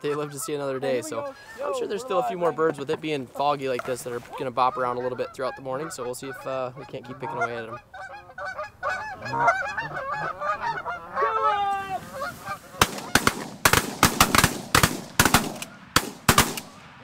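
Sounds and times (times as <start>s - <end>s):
geese honking: 0.0s - 16.7s
shotgun shots: 12.8s - 17.0s.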